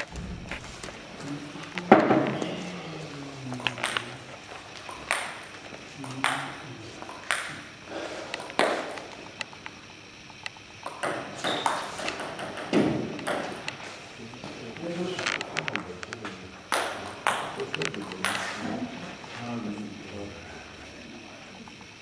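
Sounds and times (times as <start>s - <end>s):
table tennis ball clicking: 3.6s - 4.2s, 4.8s - 7.7s, 8.3s - 13.8s, 15.2s - 18.5s.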